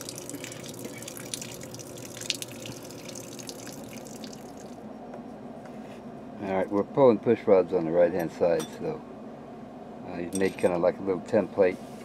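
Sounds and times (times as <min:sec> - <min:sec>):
water pouring onto pavement: 0:00.0 - 0:04.7.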